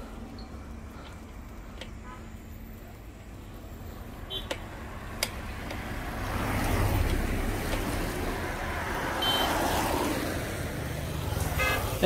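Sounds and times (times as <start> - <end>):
cars passing on wet road: 4.0 - 12.0.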